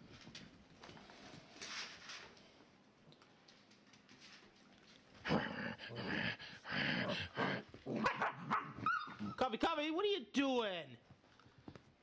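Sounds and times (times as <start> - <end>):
puppies growling: 5.2 - 9.4.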